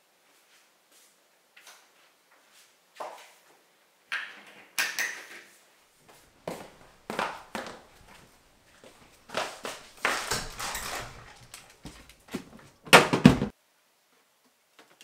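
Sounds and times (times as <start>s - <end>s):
footsteps: 6.0s - 13.5s
cabinet doors clacking closed: 9.5s - 13.5s
cabinet doors knocking shut: 10.1s - 13.5s.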